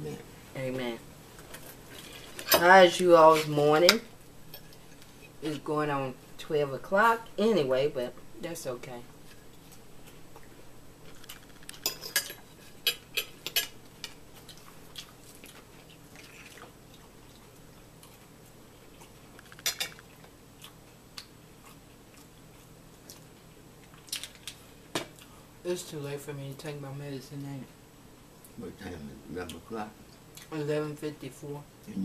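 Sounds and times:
forks clinking on plates: 11.8 - 13.7.

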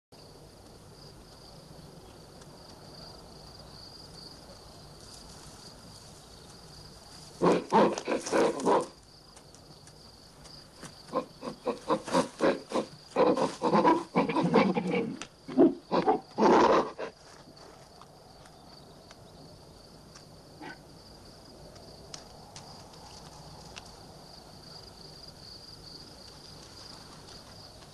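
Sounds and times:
faint high-pitched hiss: 0.2 - 15.4
apes shrieking and grunting: 7.4 - 8.9, 11.1 - 17.2.

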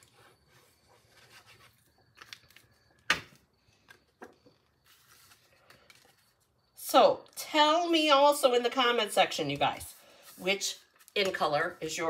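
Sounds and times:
card stock rustling: 4.8 - 6.4.

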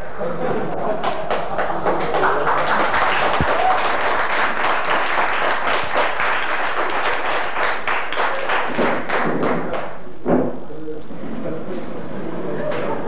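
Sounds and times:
audience applauding: 0.8 - 10.0.

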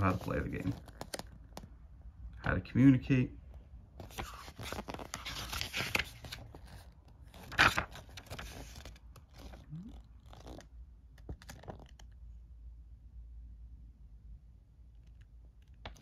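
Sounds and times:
paper pages being flipped: 0.0 - 1.7, 4.0 - 12.2.

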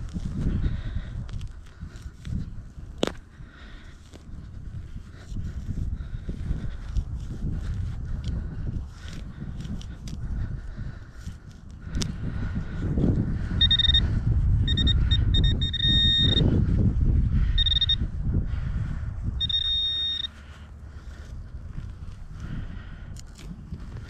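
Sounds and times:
pinpointer beeping: 13.6 - 16.5, 17.6 - 18.1, 19.4 - 20.4.

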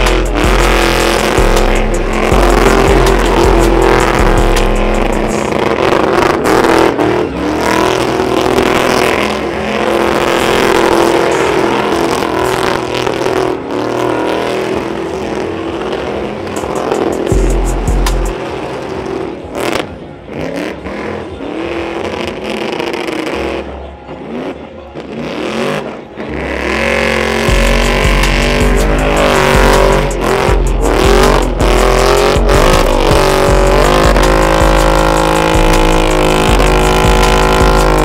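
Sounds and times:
tire spinning: 0.0 - 38.0
truck engine revving hard: 0.0 - 38.0.

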